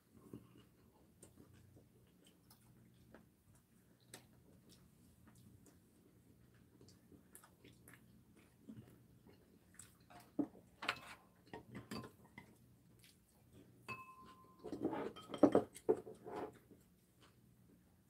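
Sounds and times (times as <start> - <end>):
utensils clinking on ceramic bowls: 10.1 - 12.4, 13.9 - 16.0.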